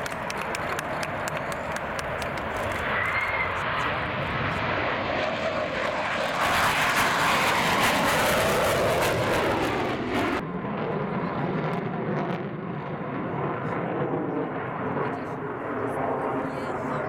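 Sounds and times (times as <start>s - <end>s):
fighter jet engines roaring: 0.0s - 17.0s.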